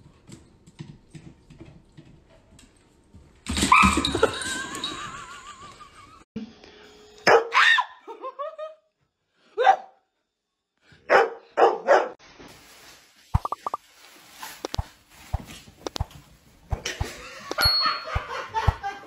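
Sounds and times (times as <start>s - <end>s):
dog barking: 7.3s - 7.9s, 9.6s - 10.0s, 11.1s - 12.2s
plastic bag rustling: 12.2s - 16.6s.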